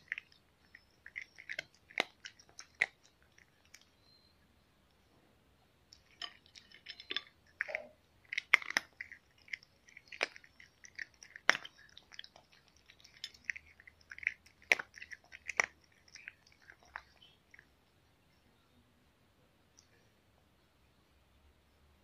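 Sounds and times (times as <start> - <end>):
cat chewing dry kibble: 0.0 - 4.0, 5.9 - 17.8.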